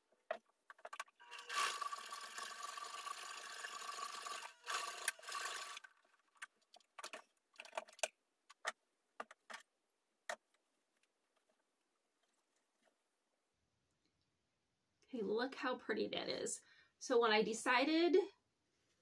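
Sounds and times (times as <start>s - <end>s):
sewing machine stitching: 1.0s - 6.3s.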